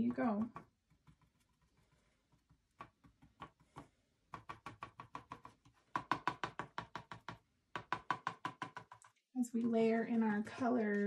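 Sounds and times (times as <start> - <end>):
paintbrush tapping on canvas: 2.4 - 9.1.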